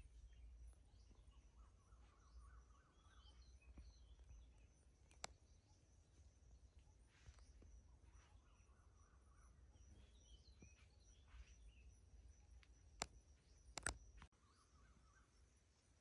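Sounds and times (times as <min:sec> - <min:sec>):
faint bird chirps: 0:00.0 - 0:16.0
sharp clicks: 0:03.7 - 0:05.4, 0:12.5 - 0:14.3.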